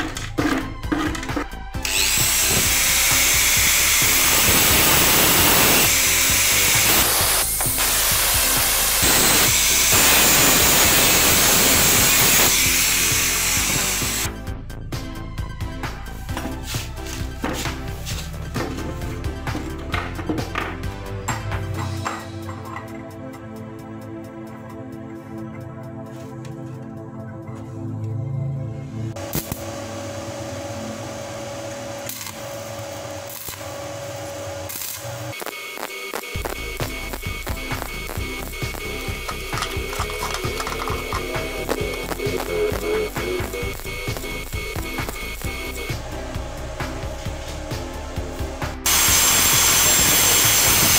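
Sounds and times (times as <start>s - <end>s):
background music: 0.0s - 35.4s, 36.2s - 50.9s
angle grinder cutting steel: 1.8s - 14.3s, 36.3s - 50.9s
welding arc crackling: 1.8s - 14.3s, 29.2s - 29.8s, 31.8s - 50.9s.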